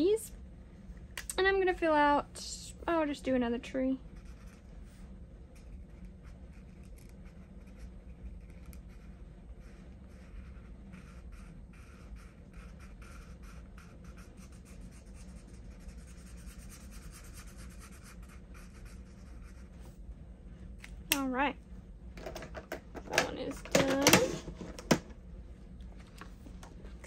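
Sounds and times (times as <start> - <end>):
marker scratching on paper: 4.1 - 4.7, 5.6 - 19.8.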